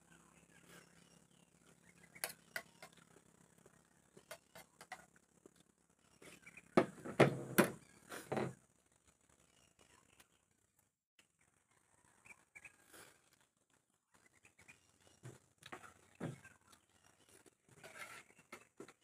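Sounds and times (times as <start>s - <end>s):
dishes rattling on table: 6.8s - 8.5s
spoon scraping on plate: 17.8s - 18.4s.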